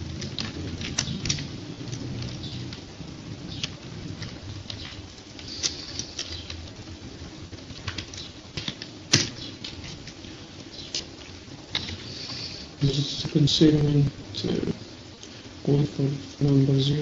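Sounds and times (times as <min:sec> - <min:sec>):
low background noise: 0:00.0 - 0:17.0.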